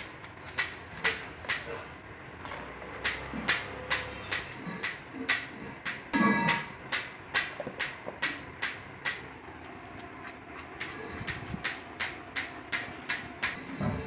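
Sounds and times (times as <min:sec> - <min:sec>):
ringing metallic tapping: 0:03.0 - 0:09.4, 0:10.8 - 0:13.6.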